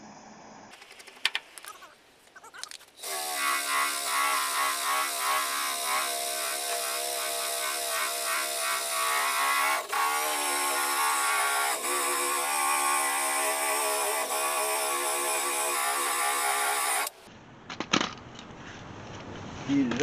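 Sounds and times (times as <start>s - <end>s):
drill disc grinding steel: 2.6s - 17.2s.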